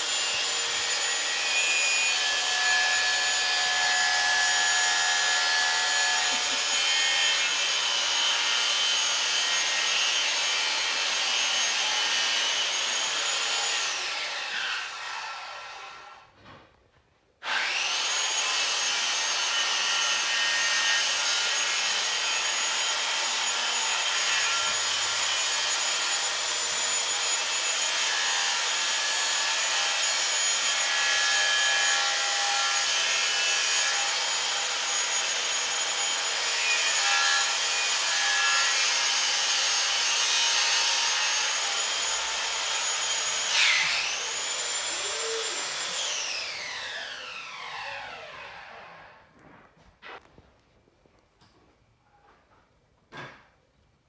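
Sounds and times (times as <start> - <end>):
small electric motor whining: 41.4 - 48.9.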